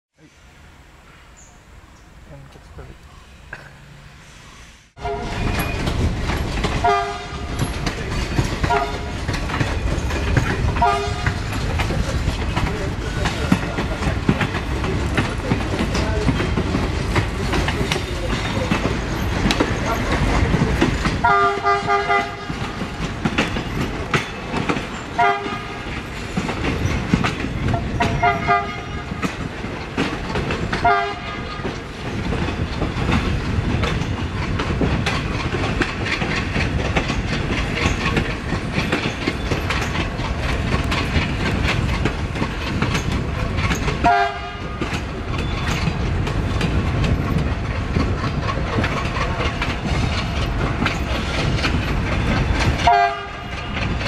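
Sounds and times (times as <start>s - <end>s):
locomotive horn blasts: 5.0s - 5.5s, 6.8s - 7.5s, 8.7s - 9.1s, 10.8s - 11.4s, 21.2s - 22.6s, 25.2s - 25.8s, 28.0s - 29.2s, 30.8s - 31.6s, 44.0s - 44.8s, 52.8s - 53.6s
train wheels clacking over rail joints: 5.0s - 54.0s.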